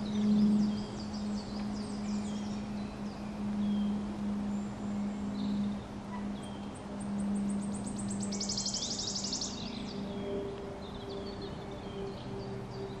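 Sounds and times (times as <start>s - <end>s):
songbird rapid trill: 0.0s - 13.0s
steady low hum: 0.0s - 13.0s.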